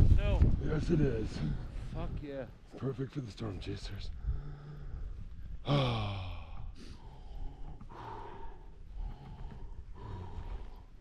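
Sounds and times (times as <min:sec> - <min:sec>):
person breathing: 0:04.2 - 0:11.0
person sighing: 0:05.6 - 0:06.9.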